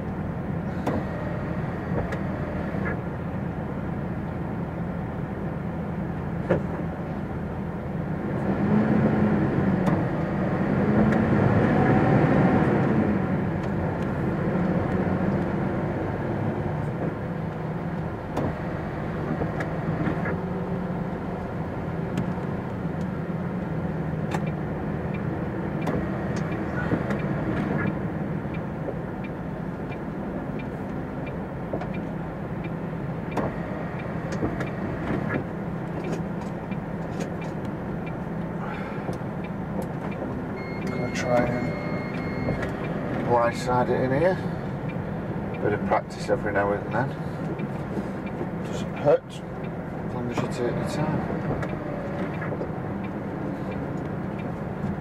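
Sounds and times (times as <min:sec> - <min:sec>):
lorry diesel engine running: 0:00.0 - 0:55.0.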